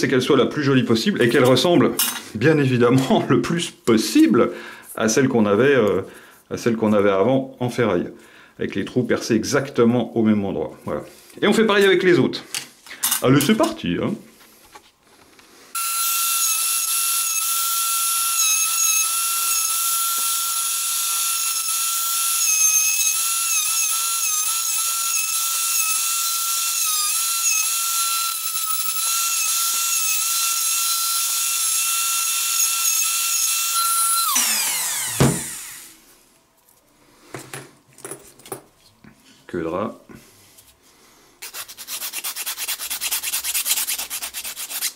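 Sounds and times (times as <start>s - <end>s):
electric power tool whining: 15.8s - 36.0s
power tool spinning down: 15.8s - 36.0s.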